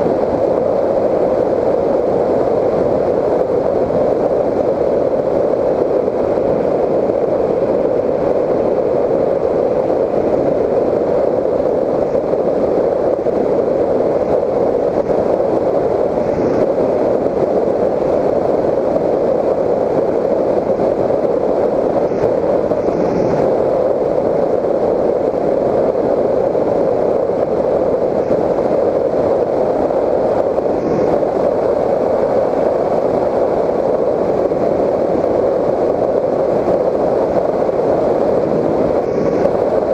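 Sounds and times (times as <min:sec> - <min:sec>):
rush of airflow: 0:00.0 - 0:39.9.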